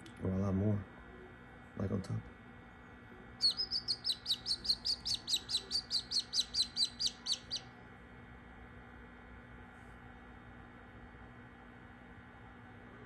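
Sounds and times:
chick peeping: 3.4s - 7.7s.

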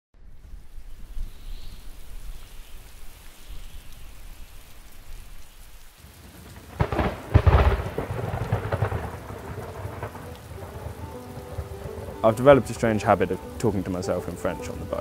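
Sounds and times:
rain falling: 0.2s - 15.0s
thunder clap and rumble: 6.4s - 13.5s.

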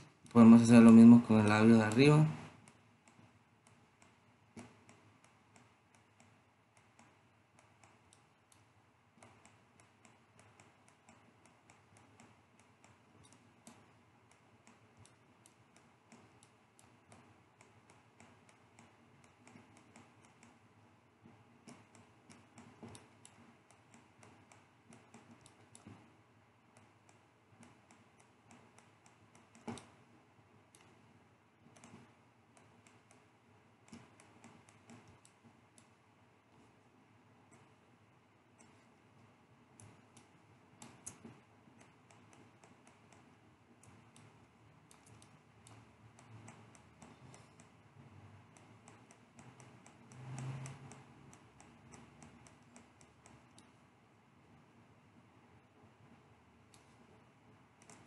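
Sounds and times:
mouse and keyboard clicks: 2.6s - 20.6s, 21.6s - 26.1s, 26.7s - 30.0s, 31.7s - 36.0s, 39.8s - 44.3s, 44.9s - 47.8s, 48.5s - 53.8s, 57.8s - 58.0s.

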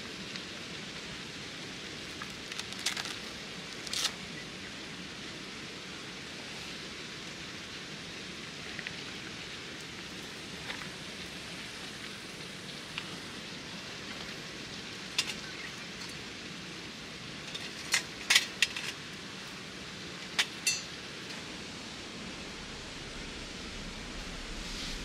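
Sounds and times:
steady hiss: 0.0s - 25.0s
metal stove clinks and knocks: 20.3s - 21.0s.

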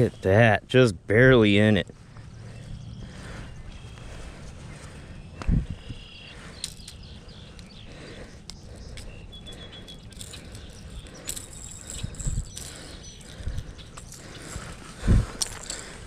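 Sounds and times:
birds chirping: 0.0s - 16.0s
outdoor background noise: 0.0s - 16.0s
sharp clicks and rustles: 6.4s - 16.0s.

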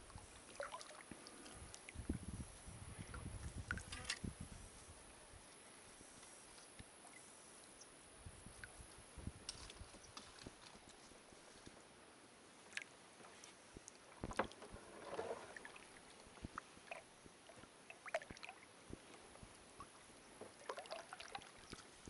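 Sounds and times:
paddle dipping in water: 0.0s - 2.0s, 12.7s - 22.0s
water swirling: 0.0s - 2.0s, 14.2s - 18.7s, 19.8s - 22.0s.

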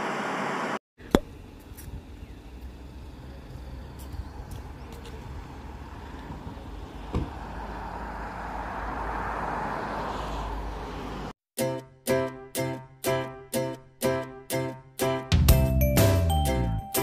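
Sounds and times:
low traffic rumble: 0.0s - 11.4s
car passing by: 5.4s - 11.4s.

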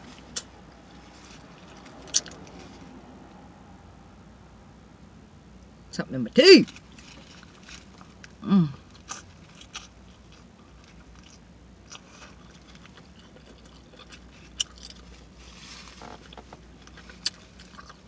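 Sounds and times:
chewing with wet smacks: 8.9s - 15.2s, 16.7s - 18.0s.

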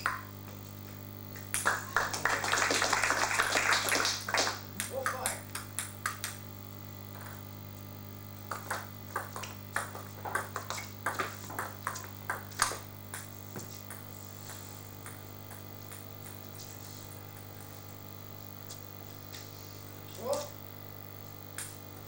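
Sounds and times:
table tennis ball clicking: 13.9s - 16.4s.

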